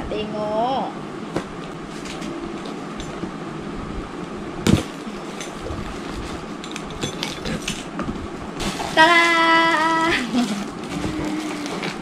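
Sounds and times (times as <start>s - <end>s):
rustles and clicks: 1.6s - 3.2s, 4.7s - 12.0s.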